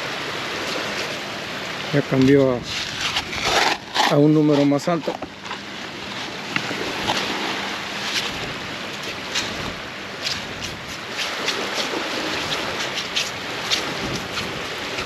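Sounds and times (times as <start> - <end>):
ocean surf: 0.0 - 15.0
wind buffeting microphone: 2.0 - 15.0.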